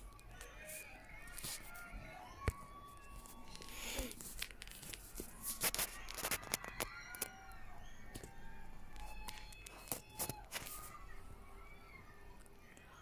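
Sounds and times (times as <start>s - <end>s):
chirp-like calls: 0.0s - 13.0s
faint voices: 0.0s - 13.0s.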